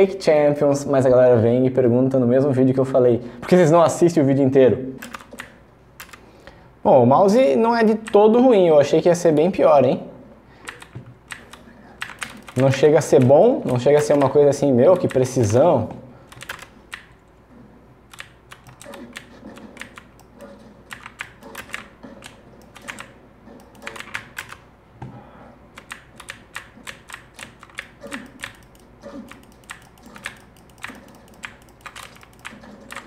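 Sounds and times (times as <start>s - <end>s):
keyboard keys and mouse buttons clicking: 5.0s - 6.2s, 10.6s - 17.3s, 18.1s - 24.7s, 25.8s - 33.0s.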